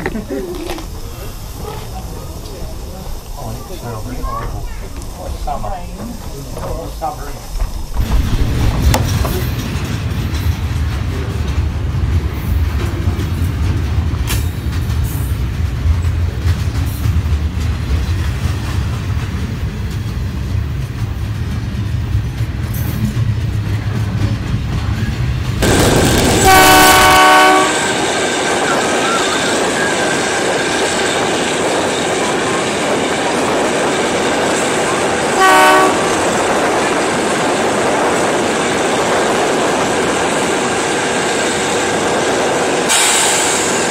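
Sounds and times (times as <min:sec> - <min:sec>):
freight train rumbling past: 0:00.0 - 0:43.9
train rattle and hiss on board: 0:00.0 - 0:43.9
train wheel clicks: 0:04.8 - 0:26.5
loud train horn: 0:25.6 - 0:28.1, 0:35.3 - 0:36.3.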